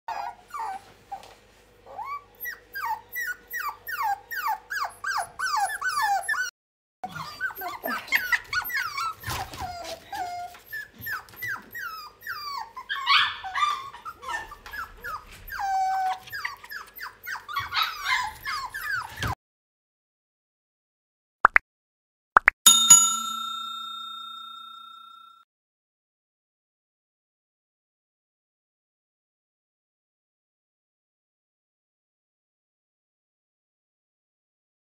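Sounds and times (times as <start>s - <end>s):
puppies whimpering and squealing: 0.1s - 19.4s.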